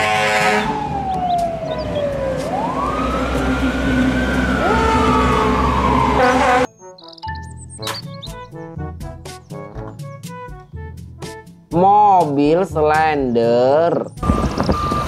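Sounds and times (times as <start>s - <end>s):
fire engine siren wailing: 0.0s - 6.8s
truck rumble and road noise: 0.0s - 11.6s, 13.5s - 15.0s
second siren tone: 0.6s - 6.7s.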